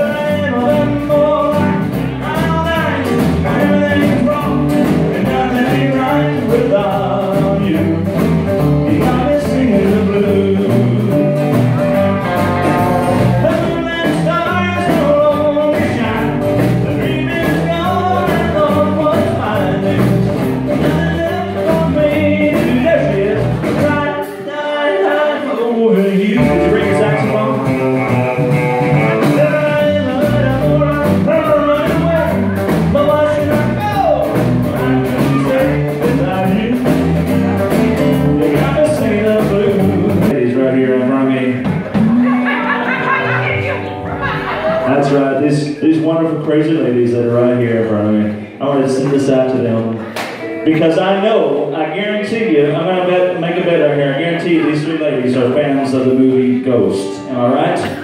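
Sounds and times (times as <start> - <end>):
lead singer: 0.0 - 44.0
live band playing: 0.0 - 58.0.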